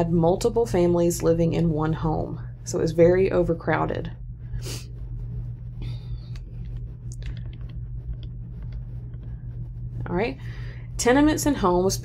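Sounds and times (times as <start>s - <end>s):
low hum: 0.0s - 12.0s
faint clicks: 6.2s - 9.3s.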